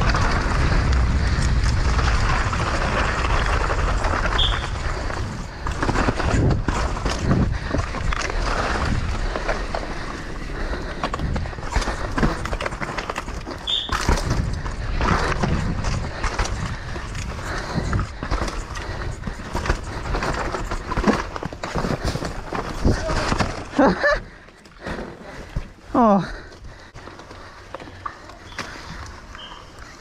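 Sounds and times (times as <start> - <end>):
wind buffeting microphone: 0.0 - 12.4, 14.0 - 20.6
bike rattling and knocking: 0.0 - 30.0
bike tyres running over dirt: 0.0 - 30.0.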